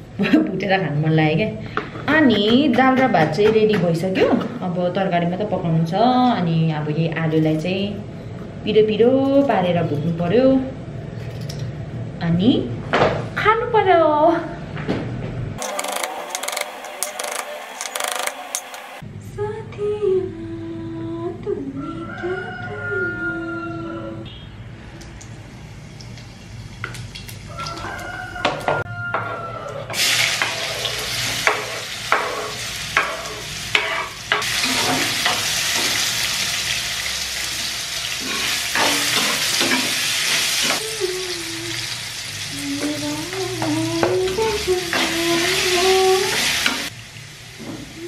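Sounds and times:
metal spatula scraping pan: 0:29.1 - 0:35.9
potatoes sizzling in hot oil: 0:30.0 - 0:40.8.

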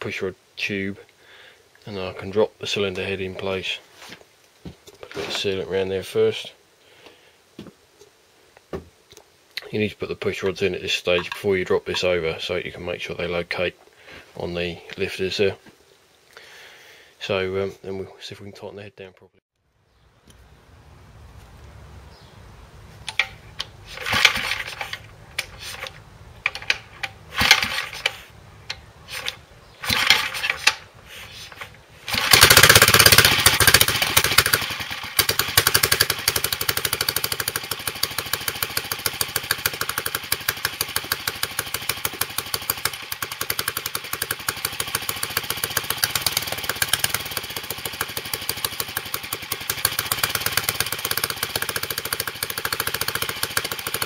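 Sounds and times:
engine cranking by hand: 0:23.0 - 0:54.0
single-cylinder engine running: 0:23.1 - 0:30.9, 0:31.5 - 0:54.0.

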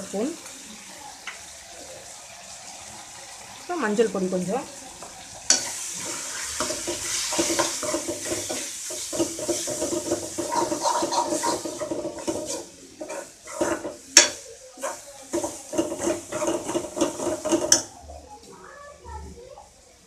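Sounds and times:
metal spoon scraping a pan: 0:05.5 - 0:17.9.

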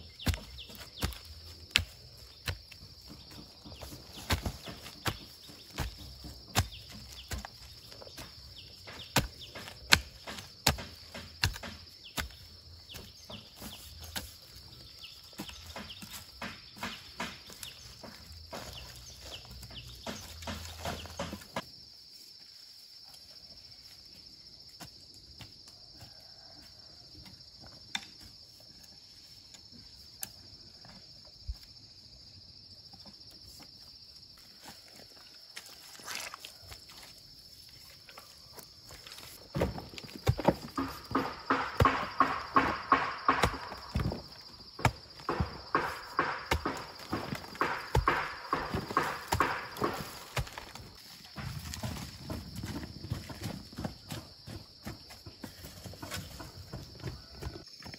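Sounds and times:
hoe chopping into dry soil: 0:00.0 - 0:21.7, 0:39.1 - 0:56.8.

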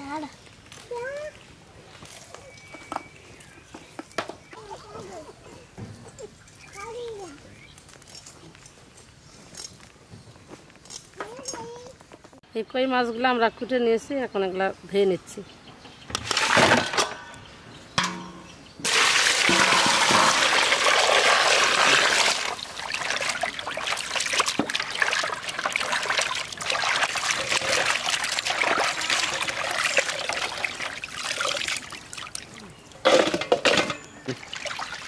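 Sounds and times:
sharp splashes: 0:18.0 - 0:33.2, 0:34.3 - 0:35.0
water rushing into a basin: 0:18.8 - 0:32.6, 0:34.3 - 0:35.0
hands sloshing fish in water: 0:18.9 - 0:32.6.

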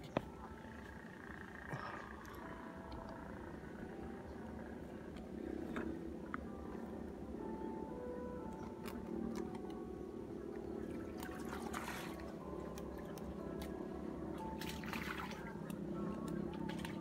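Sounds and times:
steady low hum: 0:00.0 - 0:17.0
fish splashing water: 0:10.9 - 0:13.1, 0:14.6 - 0:17.0.

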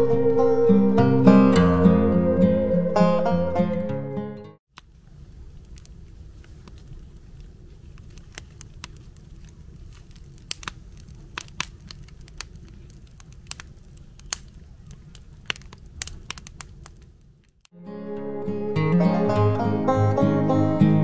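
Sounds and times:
wood fire crackling and popping: 0:04.7 - 0:17.7.

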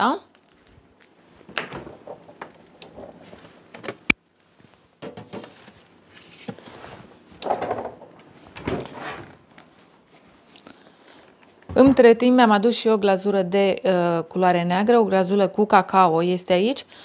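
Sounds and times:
refrigerator door opening and shutting: 0:07.5 - 0:09.4, 0:11.7 - 0:12.2
knocks and thuds: 0:11.7 - 0:12.1.

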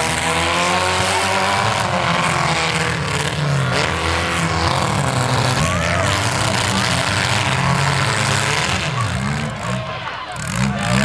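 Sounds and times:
car engines revving: 0:00.0 - 0:11.0.

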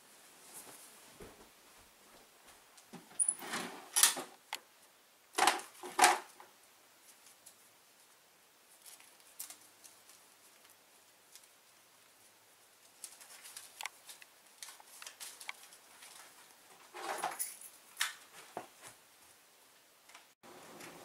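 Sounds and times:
footsteps: 0:00.2 - 0:03.4, 0:18.2 - 0:19.0
paper banknotes rustling: 0:12.8 - 0:16.6.

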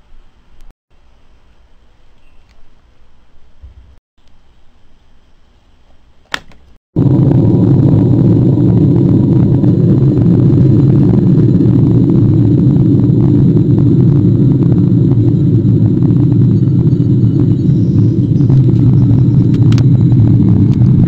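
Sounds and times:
deep explosion rumble: 0:07.0 - 0:21.0.

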